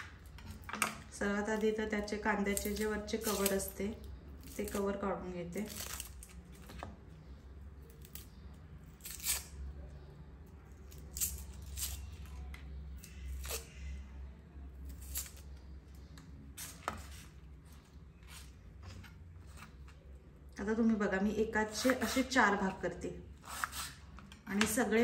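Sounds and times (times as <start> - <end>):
faint low hum: 0.0 - 25.0
onion skin crackling and tearing: 2.4 - 9.8, 10.6 - 14.0, 14.7 - 17.3.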